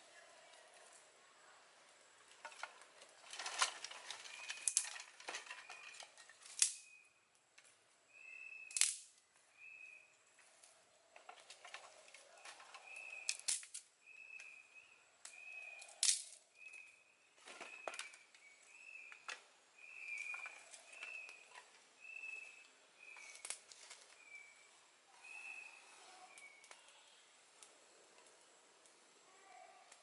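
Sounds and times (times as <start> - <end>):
sticks snapping and clattering: 2.3 - 7.0, 8.7 - 9.2, 11.2 - 14.6, 15.2 - 18.4, 23.1 - 24.3.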